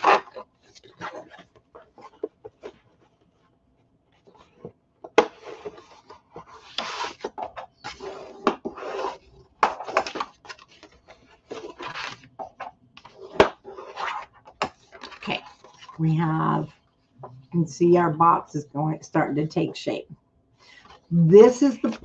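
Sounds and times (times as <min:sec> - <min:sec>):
paper rustling and sliding: 0:04.1 - 0:12.3.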